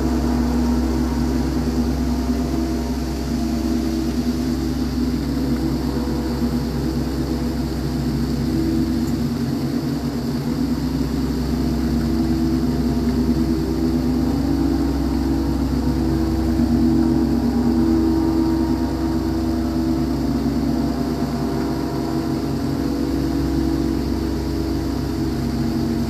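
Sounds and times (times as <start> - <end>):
gong drone: 0.0 - 26.0.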